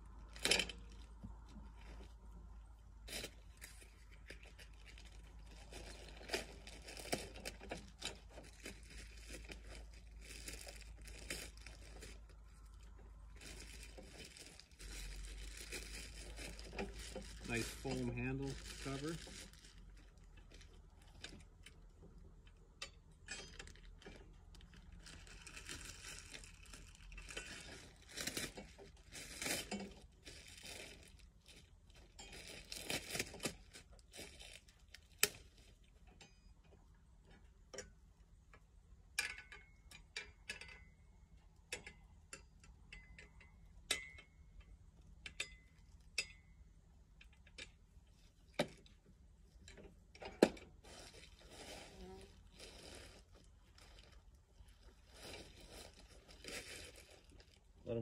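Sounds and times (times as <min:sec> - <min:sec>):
plastic wrapping crinkling: 0:03.1 - 0:21.5, 0:23.6 - 0:35.8, 0:50.8 - 0:57.8.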